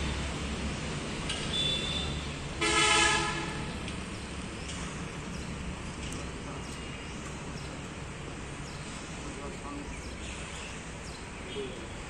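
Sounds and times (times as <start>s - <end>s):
vehicle horn honk: 1.5s - 3.7s.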